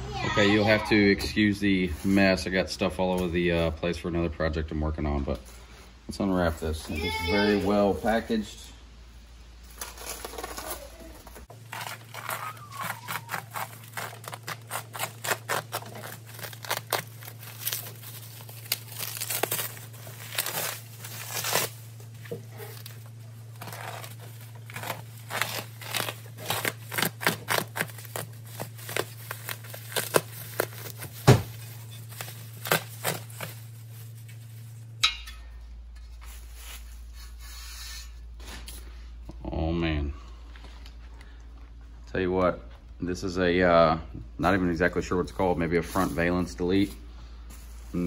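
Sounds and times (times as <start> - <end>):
plastic wrap crinkling and ripping: 9.6 - 34.9.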